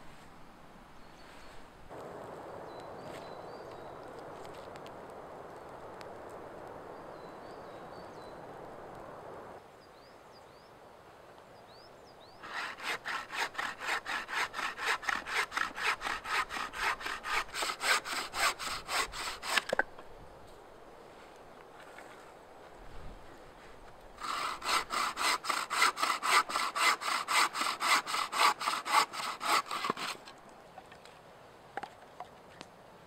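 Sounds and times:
saw cutting through branch: 12.4s - 19.8s, 24.2s - 30.4s.

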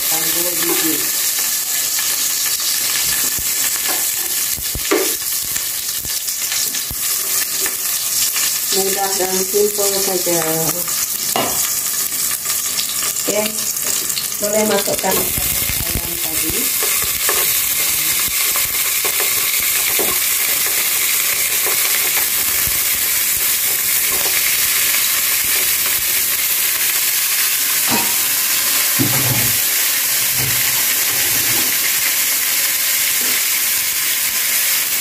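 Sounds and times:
chicken sizzling in hot oil: 0.0s - 35.0s.

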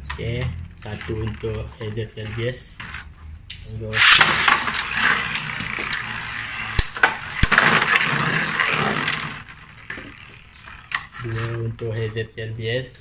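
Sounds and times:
spinning tops whirring and rattling: 0.0s - 12.1s
sharp clicks of tops hitting: 2.2s - 11.6s
string launchers ripping: 2.2s - 11.7s.

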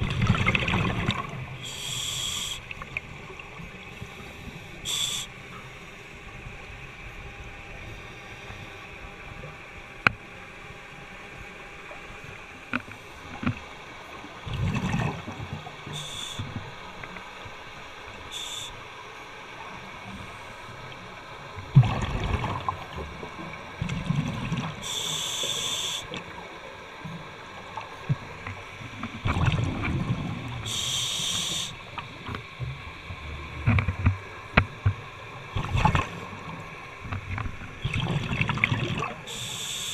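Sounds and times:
exhaled bubbles rumbling: 0.0s - 1.7s, 13.6s - 15.9s, 21.6s - 24.8s, 27.1s - 30.7s, 32.0s - 39.2s
hissing regulator inhales: 1.6s - 2.8s, 4.2s - 5.5s, 15.9s - 16.5s, 18.3s - 18.8s, 24.8s - 26.1s, 30.6s - 31.8s, 39.2s - 39.9s.

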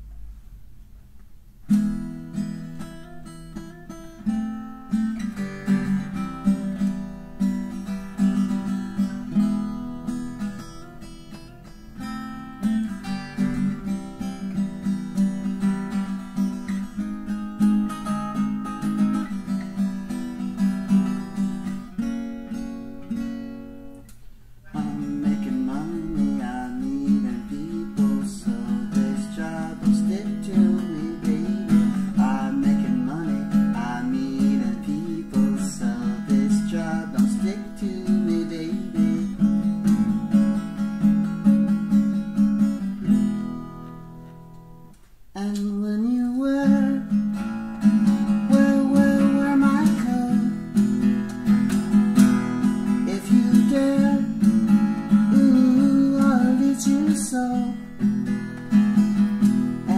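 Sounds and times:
guitar picked and strummed: 0.0s - 59.9s.

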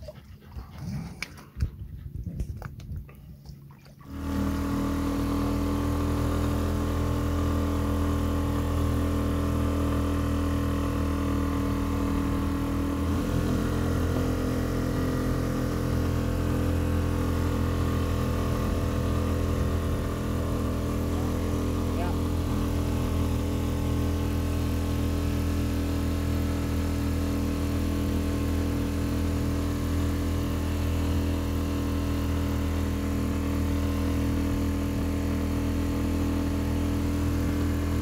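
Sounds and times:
outboard motor running: 0.0s - 38.0s.

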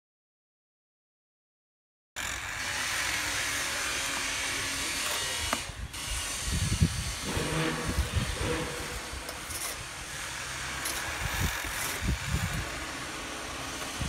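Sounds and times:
low thumps and knocks: 7.2s - 9.6s.

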